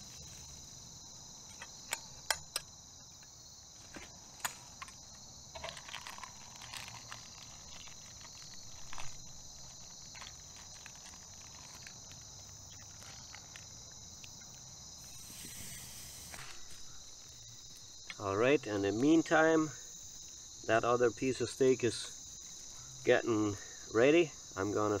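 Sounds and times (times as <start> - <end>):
crickets chirping: 0.0 - 25.0
dry leaves rustling: 3.8 - 14.1
brief hiss: 15.0 - 17.0.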